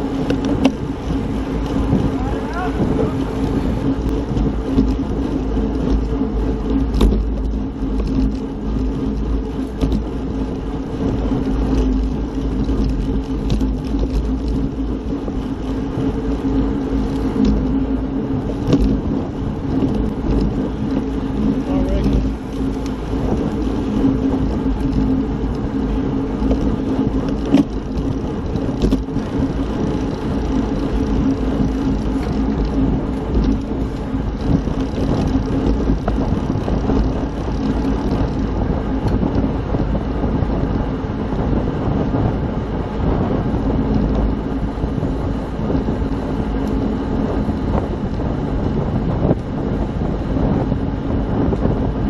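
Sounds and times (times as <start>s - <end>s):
steady low hum: 0.0s - 52.0s
wind rumbling on microphone: 0.0s - 52.0s.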